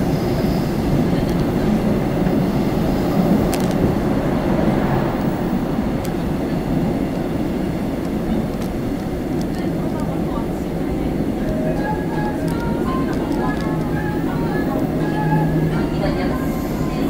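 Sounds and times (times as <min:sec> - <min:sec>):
subway train rumbling: 0:00.0 - 0:17.0
faint clicks: 0:08.0 - 0:10.2, 0:11.4 - 0:14.2.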